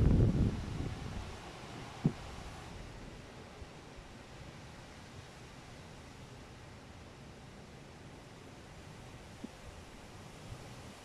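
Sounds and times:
storm wind rushing hiss: 0.0s - 3.1s.

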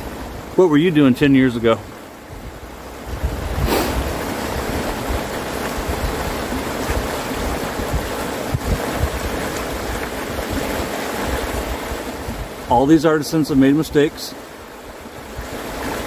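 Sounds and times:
river rapids rushing: 0.0s - 16.0s
wind rumbling on microphone: 2.2s - 12.7s.

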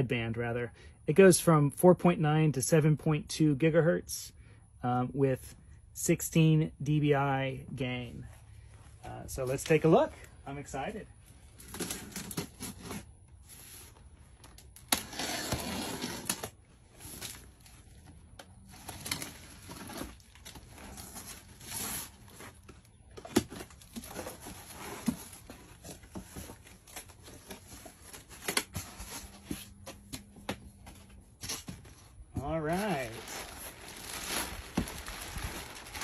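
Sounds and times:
packing tape pulled off: 14.4s - 17.7s.

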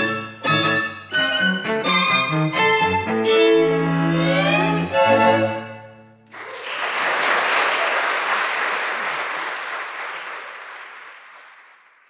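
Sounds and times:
audience applause: 6.3s - 12.0s.

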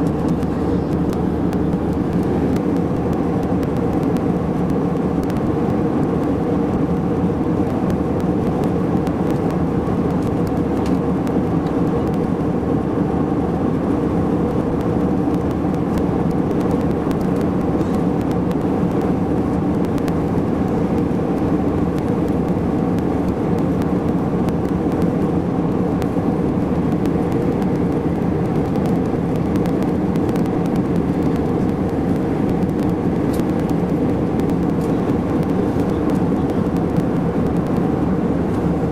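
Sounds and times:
airliner cabin drone: 0.0s - 38.9s.

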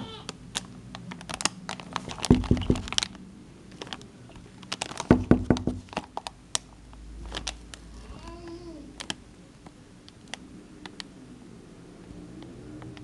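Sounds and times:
dull knocks: 2.2s - 3.0s, 5.1s - 5.9s.

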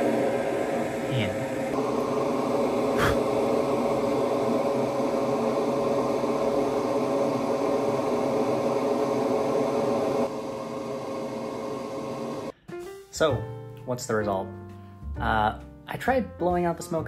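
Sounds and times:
duct fan rushing air: 0.0s - 12.6s.

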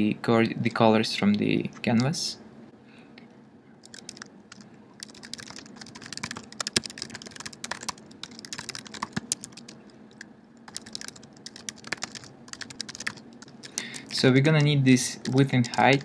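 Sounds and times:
typing on a keyboard: 3.8s - 16.0s.

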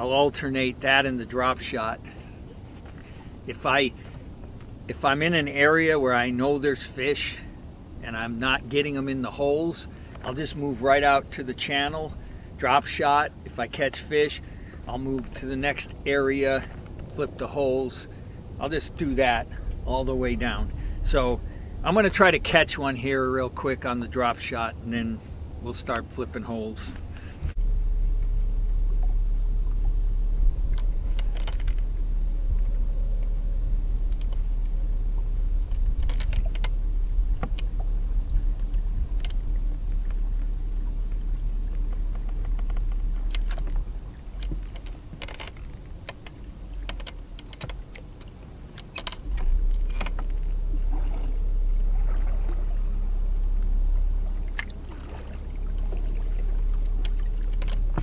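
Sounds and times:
electric trolling motor humming: 27.0s - 58.0s
fishing tackle clicks and knocks: 30.7s - 31.9s, 34.1s - 34.8s, 35.6s - 36.8s, 41.7s - 50.6s, 54.4s - 58.0s.

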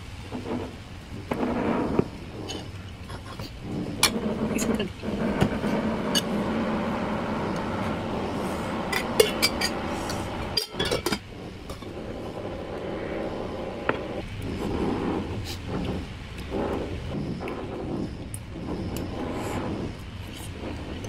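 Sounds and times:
steady background rumble: 0.0s - 21.0s
metal pot and spoons clinking: 10.5s - 11.2s.

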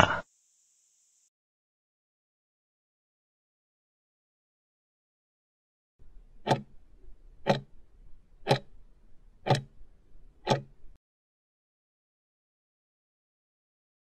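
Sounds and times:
clock ticks: 6.4s - 6.8s, 7.4s - 7.8s, 8.4s - 8.8s, 9.4s - 9.8s, 10.4s - 11.0s.

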